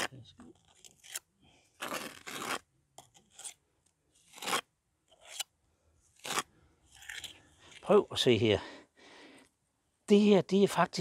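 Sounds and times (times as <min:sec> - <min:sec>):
trowel scraping mortar: 0:00.0 - 0:03.6, 0:04.2 - 0:05.5.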